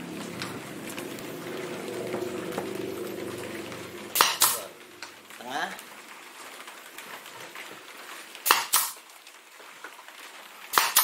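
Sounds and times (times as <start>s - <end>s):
steady low hum: 0.0s - 6.1s
pneumatic nailer firing: 8.4s - 9.0s, 10.7s - 11.0s.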